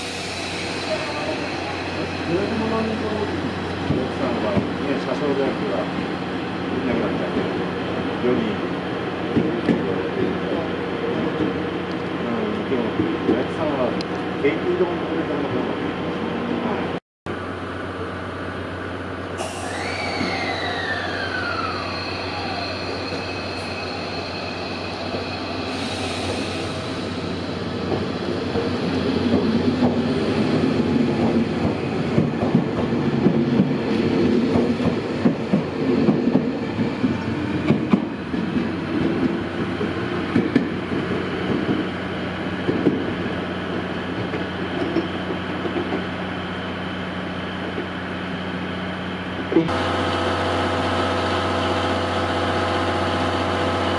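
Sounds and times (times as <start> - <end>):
train wheels clacking over rails: 0.0 - 6.0, 25.0 - 46.1
electric train braking whine: 19.3 - 27.8
wheel squeals: 19.5 - 26.7.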